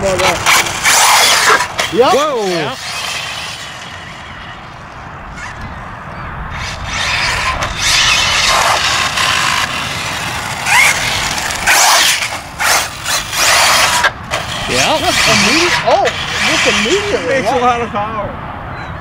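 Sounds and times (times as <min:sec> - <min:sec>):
radio-controlled car motor whine: 0:06.5 - 0:17.4.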